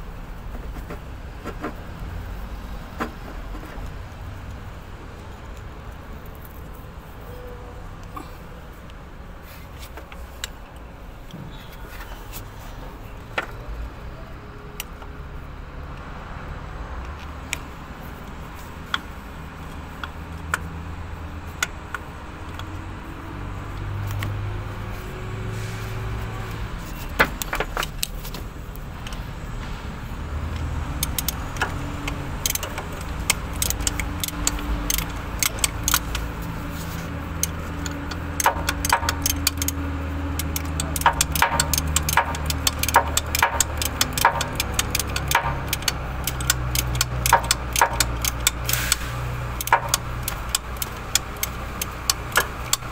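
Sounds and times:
metal tools clinking on fittings: 37.3 - 49.0.

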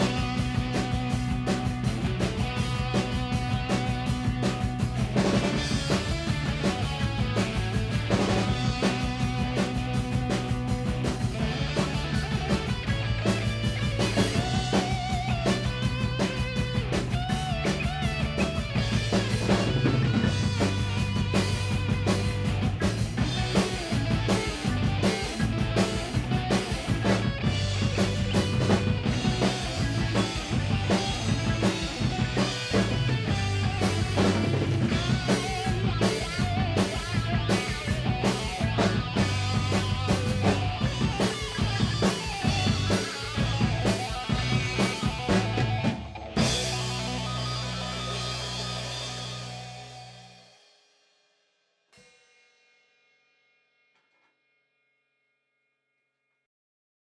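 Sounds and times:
acoustic drum kit playing: 0.0 - 50.6
instrumental backing track: 0.0 - 50.7.

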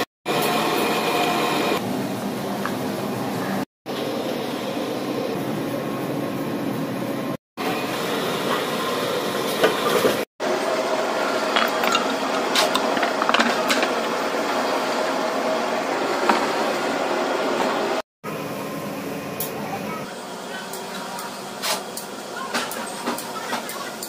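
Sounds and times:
workshop machine noise: 0.0 - 24.0.

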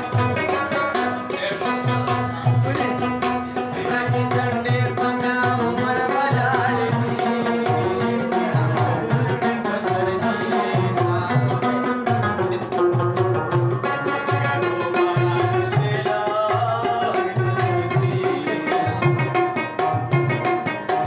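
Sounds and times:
plucked lute melody: 0.0 - 4.6, 11.4 - 16.0.

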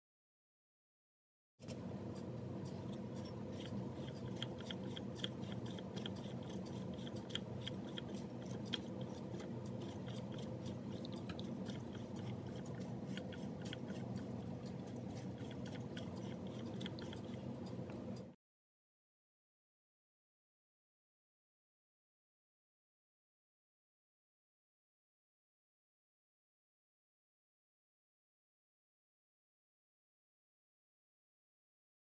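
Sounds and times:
steady low hum: 1.6 - 18.4.

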